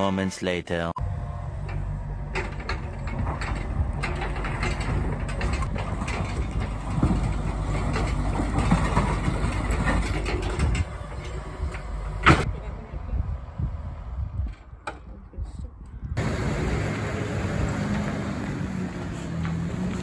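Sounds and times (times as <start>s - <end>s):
diesel engine running: 1.0s - 12.5s, 16.2s - 20.0s
rubble and bucket clatter: 2.4s - 12.5s.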